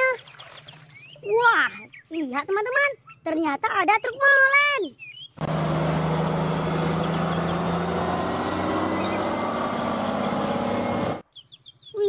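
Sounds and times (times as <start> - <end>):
diesel engine running: 5.4 - 11.2.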